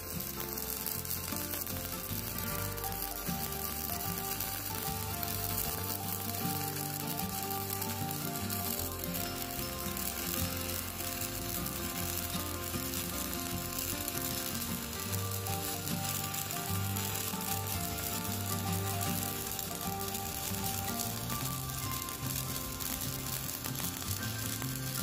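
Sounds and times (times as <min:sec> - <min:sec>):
welding arc crackling: 0:00.0 - 0:25.0.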